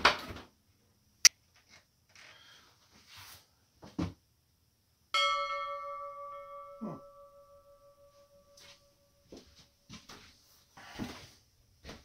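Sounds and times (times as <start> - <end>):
bell ringing: 5.2 - 9.2.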